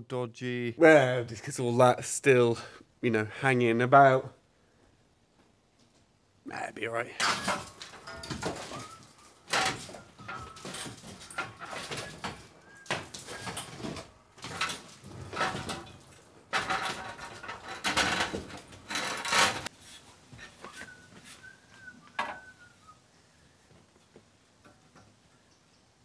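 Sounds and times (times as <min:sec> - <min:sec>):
bird chirping: 0:25.3 - 0:26.0.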